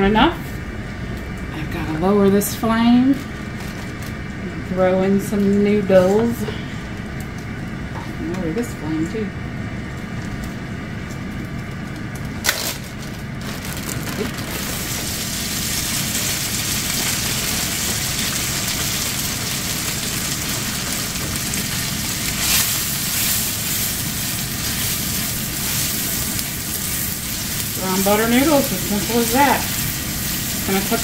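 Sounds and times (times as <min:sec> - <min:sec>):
noodles sizzling in butter: 0:14.2 - 0:31.0.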